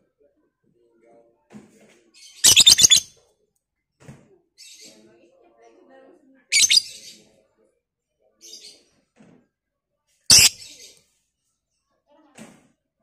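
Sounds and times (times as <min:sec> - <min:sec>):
bird shrill chirps: 0:02.4 - 0:03.1, 0:06.6 - 0:07.0, 0:10.3 - 0:10.6.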